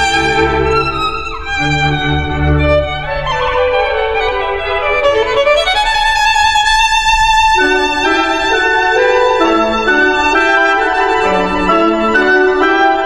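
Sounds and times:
low notes: 0.0 - 5.6
instrumental melody: 0.0 - 13.0.

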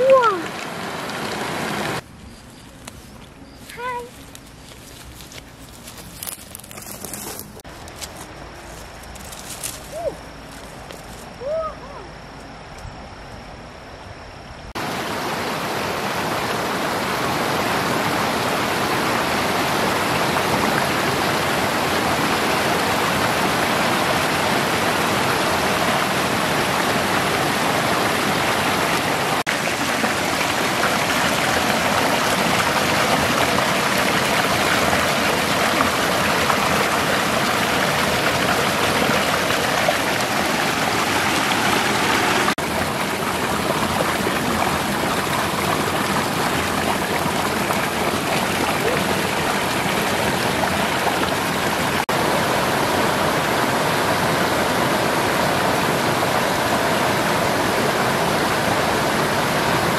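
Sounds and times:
waterfall rushing over rocks: 0.0 - 2.0, 14.8 - 59.9.

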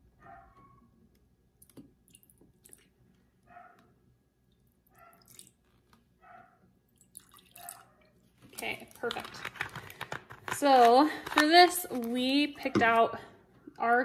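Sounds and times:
liquid pouring and gurgling: 7.0 - 7.9.

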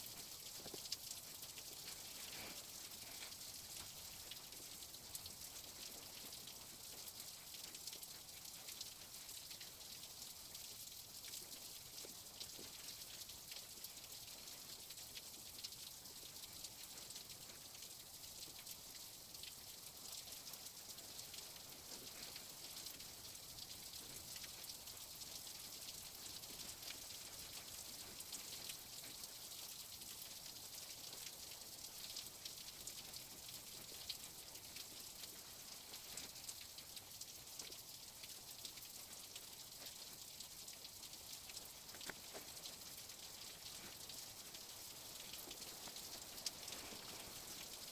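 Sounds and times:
faint steady hiss: 0.0 - 47.9
small crackles: 0.0 - 47.9.

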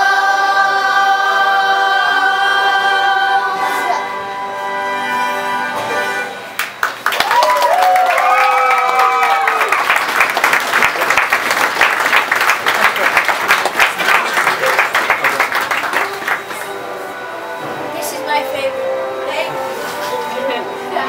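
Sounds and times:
crowd applause: 6.6 - 17.0
cheers and whoops: 7.1 - 10.0.

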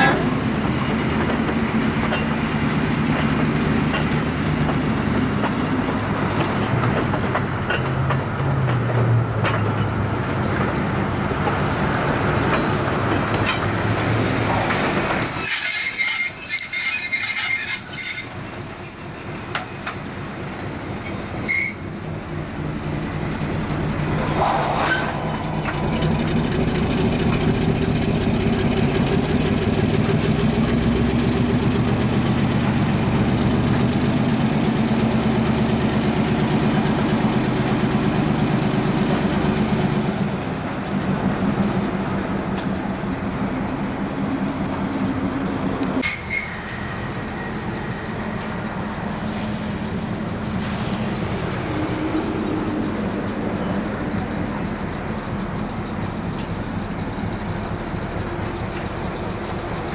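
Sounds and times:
diesel locomotive engine running: 0.0 - 15.4, 17.8 - 59.9
steel wheels squealing: 13.4 - 26.0, 46.0 - 56.6.

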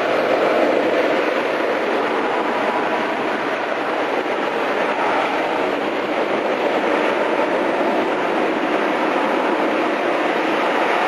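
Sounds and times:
jet engines roaring: 0.0 - 11.0.

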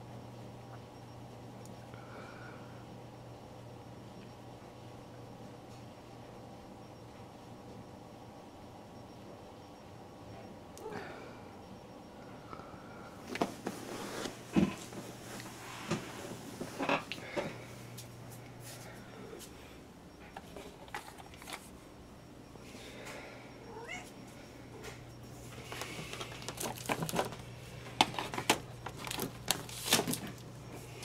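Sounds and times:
steady low hum: 0.0 - 31.0
cat meowing: 23.7 - 24.1
clicks and knocks of handling: 25.7 - 30.4.

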